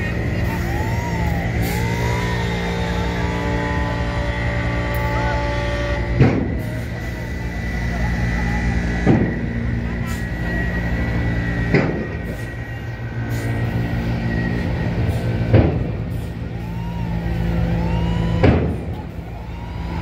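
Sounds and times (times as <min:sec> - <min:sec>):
bus diesel engine running: 0:00.0 - 0:20.0
air brake hisses: 0:12.2 - 0:15.5, 0:16.1 - 0:16.5.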